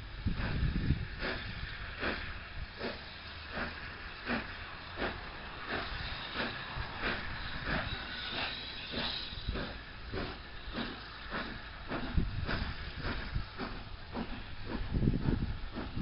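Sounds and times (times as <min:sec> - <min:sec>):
steam hissing: 0:00.0 - 0:16.0
steam locomotive chuffing: 0:00.0 - 0:16.0.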